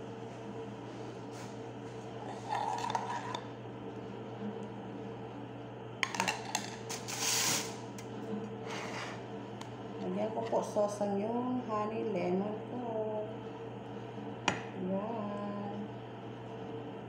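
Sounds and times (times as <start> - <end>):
steady low hum: 0.0 - 17.0
metal spoon scraping a pot: 2.3 - 3.4.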